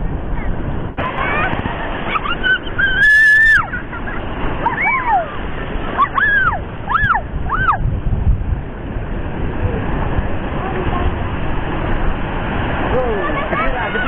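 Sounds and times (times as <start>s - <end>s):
surf washing over rocks: 0.0s - 14.0s
young child squealing: 2.1s - 4.0s, 4.6s - 5.4s, 6.0s - 7.8s.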